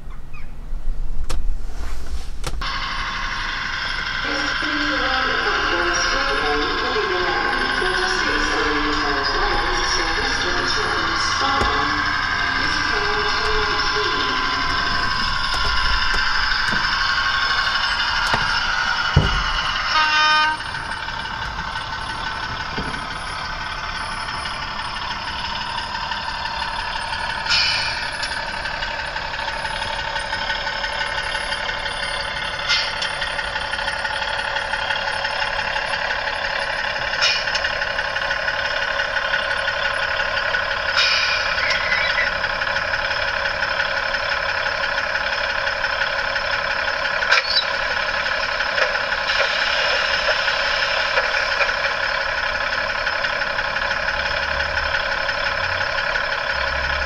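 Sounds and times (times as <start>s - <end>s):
thin diesel engine drone: 0.0s - 57.0s
brief tone: 19.2s - 21.1s.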